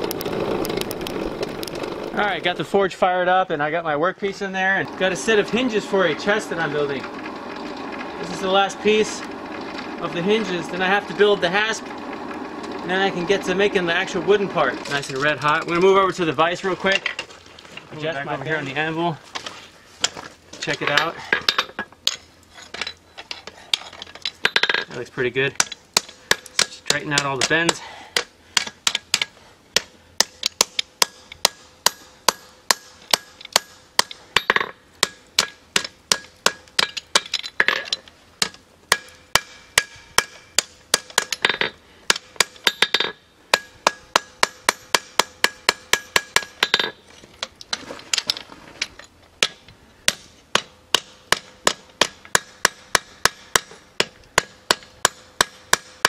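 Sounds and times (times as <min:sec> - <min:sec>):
hammer striking iron on anvil: 0:25.6 - 0:37.8, 0:38.4 - 0:47.0, 0:49.4 - 0:56.0.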